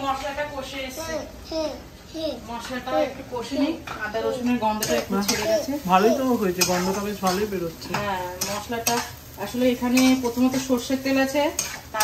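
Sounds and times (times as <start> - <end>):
spatula scraping frying pan: 3.9 - 12.0
paste sizzling in pan: 4.2 - 12.0.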